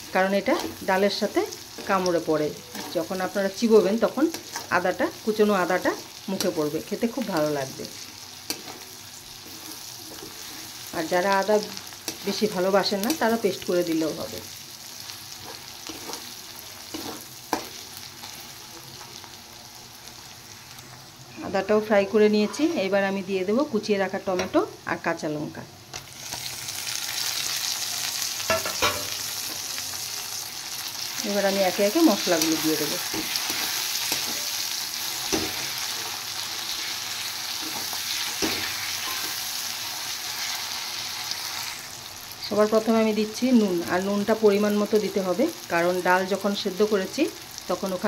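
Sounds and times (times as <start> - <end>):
food sizzling in hot oil: 0.0 - 48.0
metal spatula scraping wok: 1.7 - 3.4, 4.3 - 4.9, 8.4 - 10.9, 15.3 - 18.4, 21.4 - 23.0.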